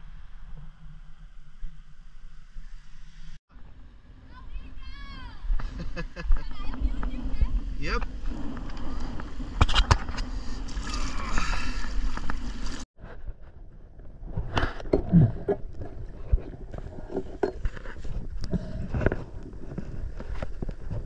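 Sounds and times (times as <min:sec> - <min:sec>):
underwater clicks and gurgling: 0:08.0 - 0:12.8, 0:14.3 - 0:21.0
water sloshing and splashing: 0:08.1 - 0:12.9.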